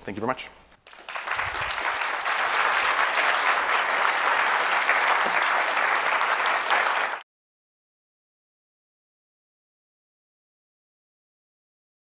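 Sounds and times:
large audience applauding: 0.8s - 7.2s.

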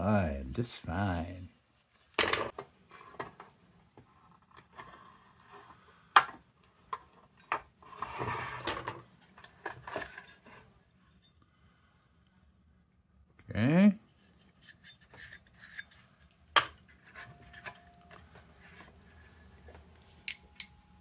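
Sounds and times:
metal scraping rub: 7.8s - 9.0s.

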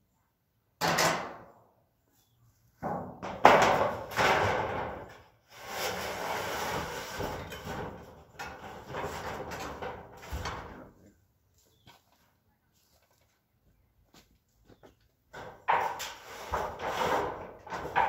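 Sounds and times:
metal sheet rattling and scraping: 2.8s - 11.0s, 15.3s - 18.0s.

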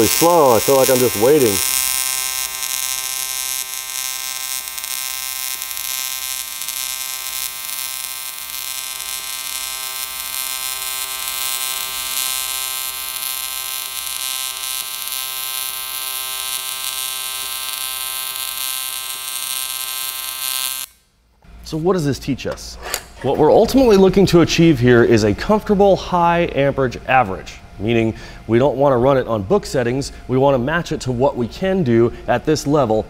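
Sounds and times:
welding arc buzzing with hiss: 0.0s - 21.5s.

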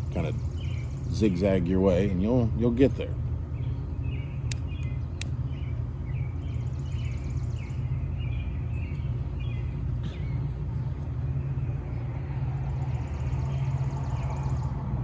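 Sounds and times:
birds chirping: 0.0s - 15.0s
steady low hum: 0.0s - 15.0s
sharp clicks: 4.4s - 5.4s.

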